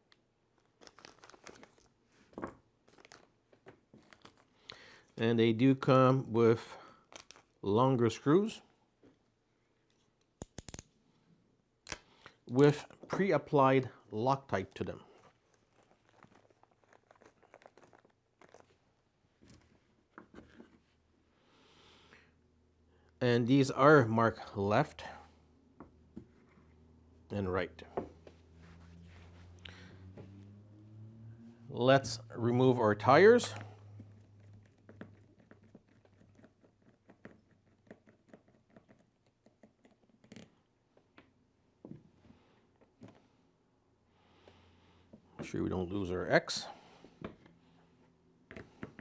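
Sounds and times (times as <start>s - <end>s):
small screws clicking in hand: 10.4s - 10.9s.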